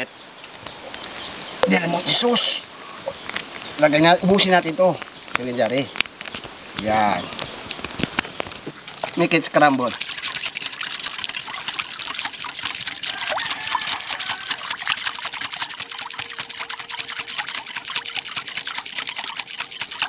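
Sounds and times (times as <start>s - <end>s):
liquid sloshing: 8.8s - 20.0s
whisk clicking against glass bowl: 9.1s - 20.0s.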